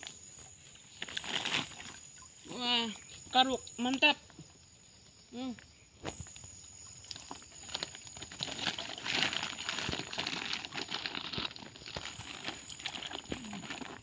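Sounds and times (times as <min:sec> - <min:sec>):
water splashing and pattering: 0:06.1 - 0:14.0
plastic sack crinkling: 0:07.2 - 0:14.0.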